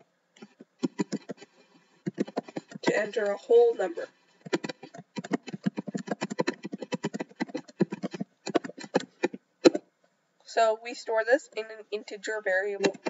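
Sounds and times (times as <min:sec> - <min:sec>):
computer keyboard typing: 0:00.4 - 0:09.8, 0:12.8 - 0:13.0.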